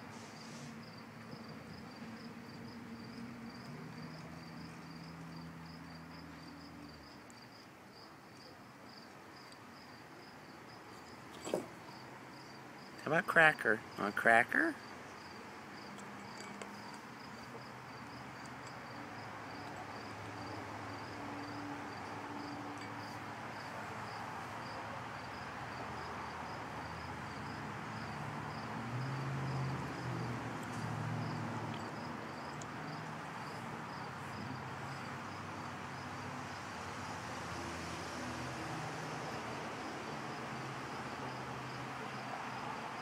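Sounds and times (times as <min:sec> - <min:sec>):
outdoor hiss: 0:00.0 - 0:01.4
insects chirping: 0:00.4 - 0:13.0, 0:14.8 - 0:43.0.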